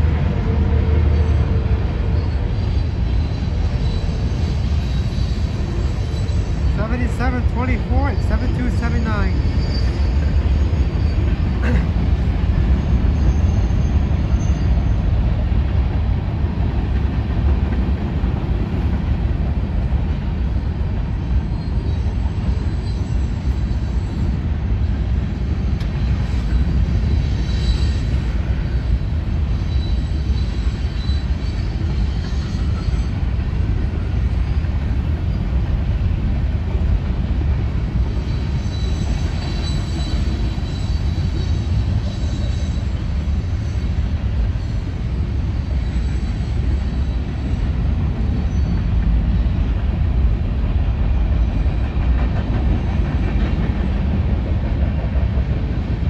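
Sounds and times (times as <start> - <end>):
steel wheels rumbling on rail: 0.0 - 56.0
high wheel squeals: 0.9 - 15.2, 21.4 - 35.6, 38.0 - 48.9.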